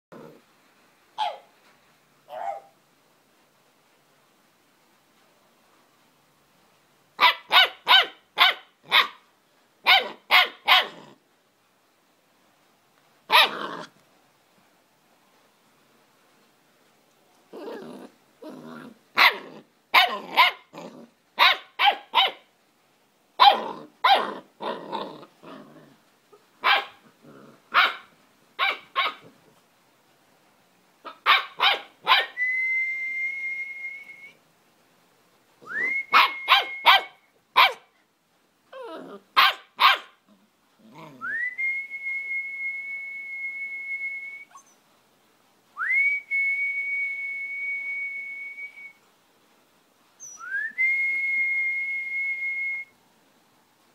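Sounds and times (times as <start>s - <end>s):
puppy barking: 1.2s - 1.5s, 2.3s - 2.8s, 7.2s - 9.2s, 9.8s - 11.2s, 13.3s - 13.9s, 19.2s - 22.5s, 23.4s - 24.5s, 26.6s - 27.0s, 27.7s - 29.3s, 31.0s - 32.4s, 36.1s - 37.9s, 39.4s - 40.2s
long high whistle: 32.4s - 34.4s, 35.6s - 37.0s, 41.3s - 44.6s, 45.8s - 49.0s, 50.2s - 53.0s.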